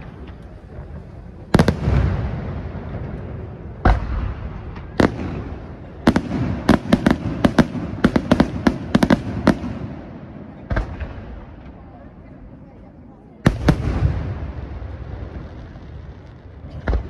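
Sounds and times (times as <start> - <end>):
sharp firework bangs: 0.9 - 11.5.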